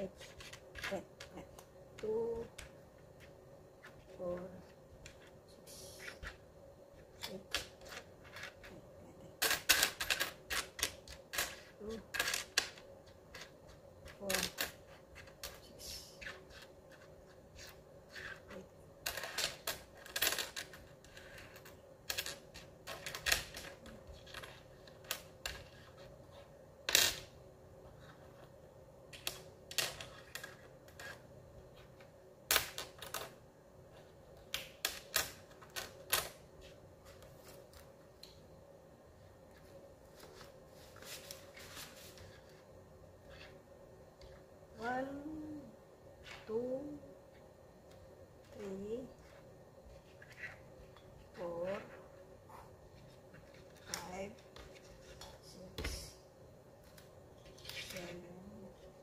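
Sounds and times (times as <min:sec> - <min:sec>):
coins clinking on wooden desk: 0:09.4 - 0:15.6.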